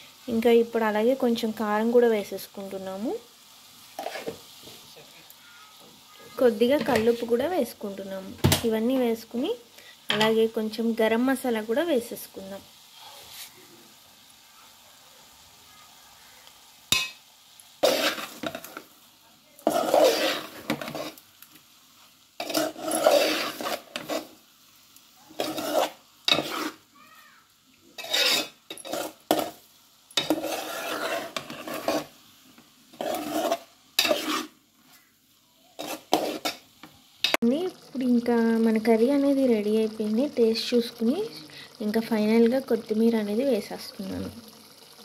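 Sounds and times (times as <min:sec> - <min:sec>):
metal spoon scraping a metal pot: 0:17.8 - 0:18.6, 0:19.6 - 0:21.2, 0:22.4 - 0:24.3, 0:25.4 - 0:26.8, 0:28.0 - 0:29.6, 0:30.2 - 0:32.1, 0:32.9 - 0:34.5, 0:35.8 - 0:36.6.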